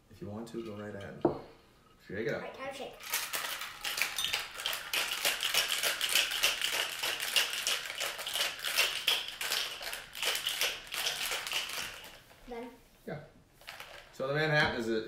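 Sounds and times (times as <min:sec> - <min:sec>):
ice rattling in cocktail shaker: 0:03.0 - 0:12.3, 0:13.6 - 0:14.2.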